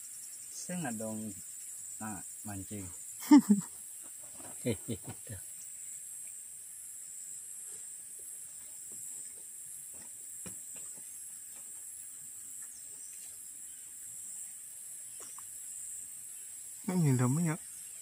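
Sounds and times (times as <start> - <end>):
high-pitched insect chorus: 0.0 - 18.0
faint ticks: 15.1 - 15.6.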